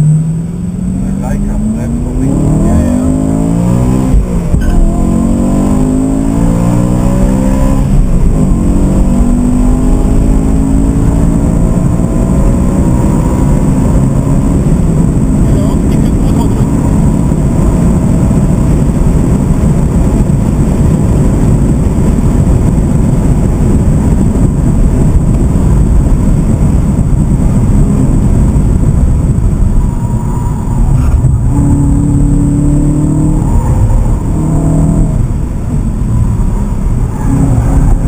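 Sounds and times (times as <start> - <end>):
car engine at speed: 0.0 - 38.0
road and wind noise: 0.0 - 38.0.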